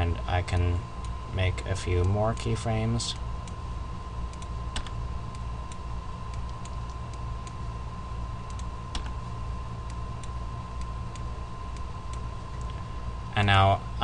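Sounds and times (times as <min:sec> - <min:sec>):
faint constant whine: 0:00.0 - 0:14.0
steady low hum: 0:00.0 - 0:14.0
keyboard and mouse clicks: 0:04.4 - 0:05.0, 0:08.4 - 0:09.2.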